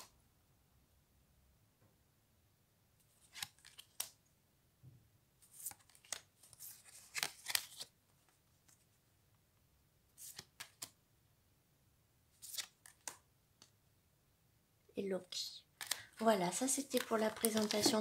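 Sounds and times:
cards sliding and flicking: 0:03.0 - 0:04.2, 0:05.4 - 0:07.9, 0:10.2 - 0:11.0, 0:12.4 - 0:13.7, 0:15.8 - 0:16.2.

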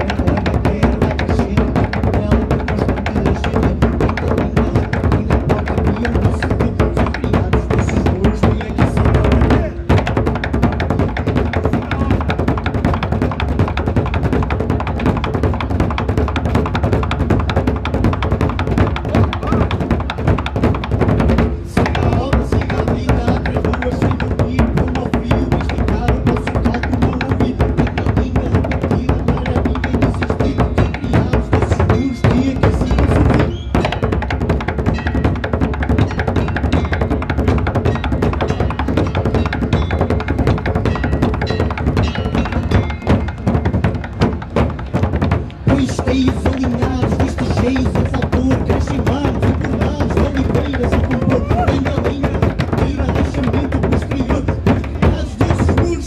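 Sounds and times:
men singing: 0:00.0 - 0:10.0, 0:21.7 - 0:34.1, 0:45.7 - 0:56.0
group drumming on barrel drums: 0:00.0 - 0:56.0.

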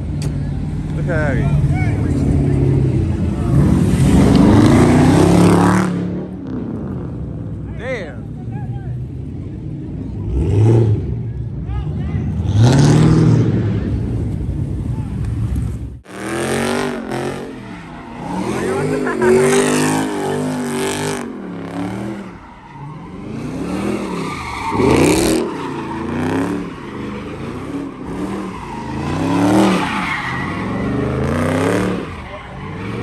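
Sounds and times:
car engine revving: 0:00.0 - 0:33.0
tyres screeching: 0:16.4 - 0:33.0.

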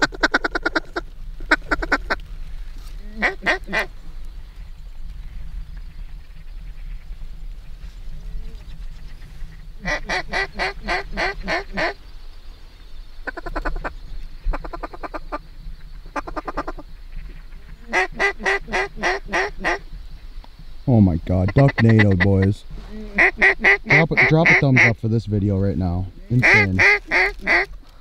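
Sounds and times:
duck quacking: 0:03.1 - 0:03.9, 0:09.8 - 0:12.0, 0:17.6 - 0:19.8, 0:21.4 - 0:25.0, 0:26.3 - 0:27.7.

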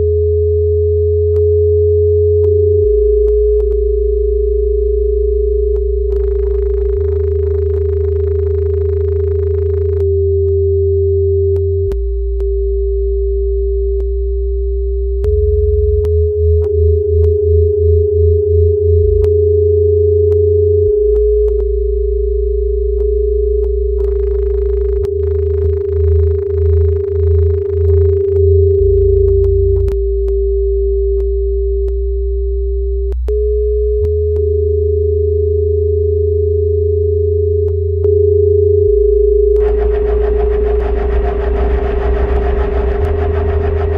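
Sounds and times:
deep low drones: 0:00.0 - 0:38.1, 0:39.5 - 0:43.9
sine tone: 0:00.0 - 0:43.9
low throbbing pulse: 0:02.4 - 0:34.5, 0:39.5 - 0:43.9
sharp electronic clicks: 0:05.8 - 0:10.6, 0:24.0 - 0:28.4, 0:39.6 - 0:43.9.

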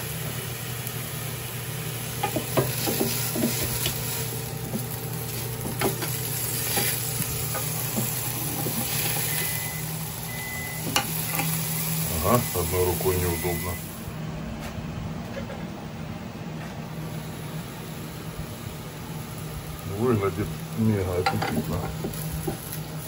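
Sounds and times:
food sizzling on a grill: 0:00.0 - 0:14.1, 0:17.0 - 0:23.0
fan humming: 0:00.0 - 0:23.0.

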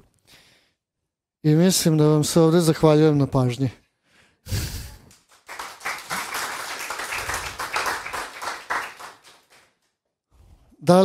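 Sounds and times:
audience applauding: 0:05.1 - 0:09.8.

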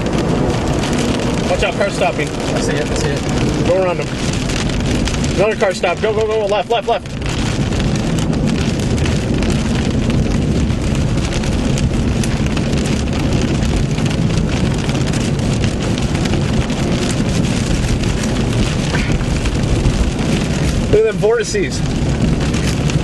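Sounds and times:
rain pattering on car roof: 0:00.0 - 0:23.0
tyres rumbling on wet road: 0:00.0 - 0:23.0.

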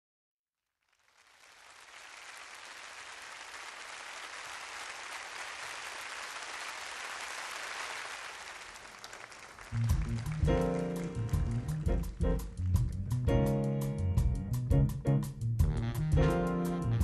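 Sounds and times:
audience applauding: 0:00.8 - 0:13.2.

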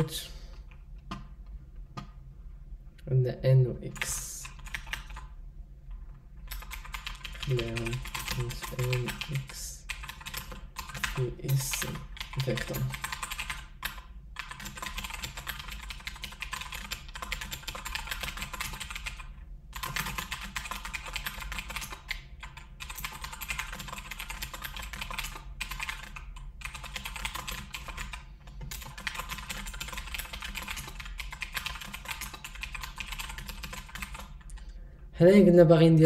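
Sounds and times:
keyboard typing clicks: 0:06.4 - 0:34.7.

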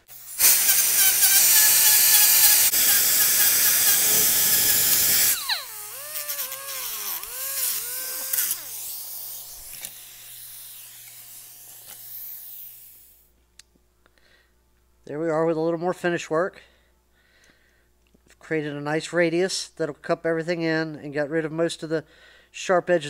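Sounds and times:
die grinder sanding steel: 0:00.0 - 0:13.1
grinder whine winding down: 0:00.1 - 0:12.0.

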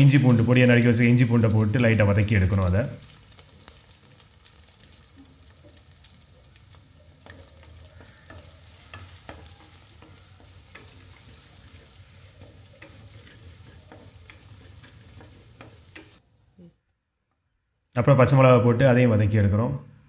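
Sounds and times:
garlic sizzling in hot oil: 0:00.0 - 0:16.2
wooden spoon stirring: 0:00.0 - 0:16.2.

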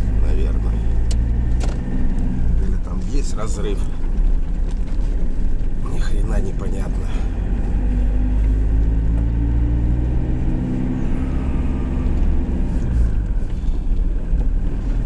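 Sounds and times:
road noise: 0:00.0 - 0:15.0
truck engine droning: 0:00.0 - 0:15.0.

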